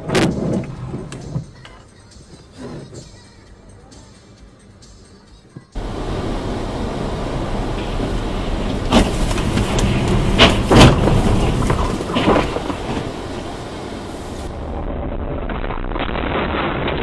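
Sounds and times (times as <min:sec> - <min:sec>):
car road noise: 0:00.0 - 0:03.0, 0:05.8 - 0:17.0
sharp knocks and bangs: 0:08.6 - 0:13.6.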